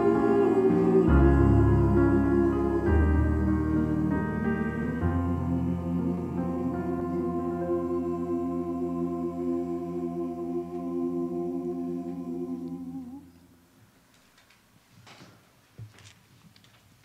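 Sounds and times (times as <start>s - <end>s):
group of singers holding chord: 0.0s - 13.7s.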